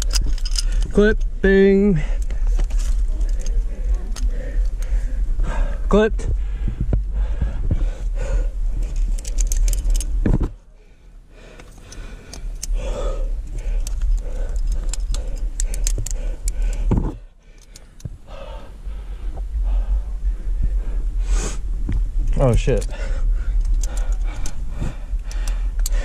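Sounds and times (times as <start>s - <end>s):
carabiners clinking: 0.0s - 1.3s, 2.0s - 5.1s, 8.8s - 10.3s, 11.5s - 18.0s, 22.3s - 26.0s
low microphone rumble: 0.0s - 26.0s.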